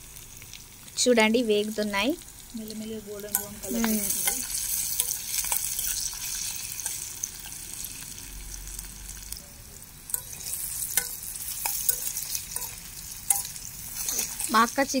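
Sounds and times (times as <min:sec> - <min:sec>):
onions sizzling in hot oil: 0:00.0 - 0:15.0
metal spoon stirring in pan: 0:03.2 - 0:08.2, 0:10.1 - 0:15.0.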